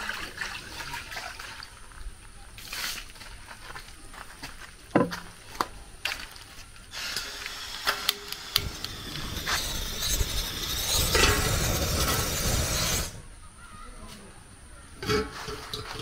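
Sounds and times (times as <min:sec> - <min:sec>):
gas burner rushing hiss: 0:06.9 - 0:13.3.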